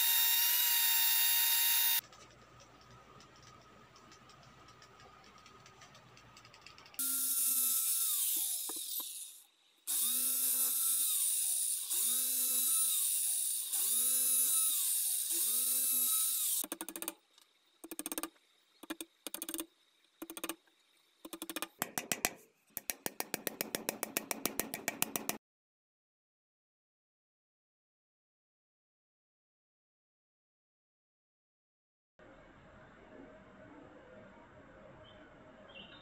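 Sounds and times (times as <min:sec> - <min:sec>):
cordless drill boring into wood: 0:00.0 - 0:02.0, 0:07.0 - 0:16.6
drill trigger blips: 0:00.0 - 0:02.0.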